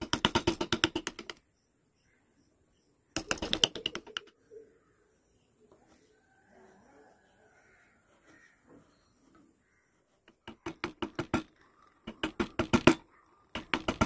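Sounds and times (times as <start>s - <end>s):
rapid sharp taps on wood: 0.0s - 1.4s, 3.2s - 4.3s, 10.2s - 14.0s.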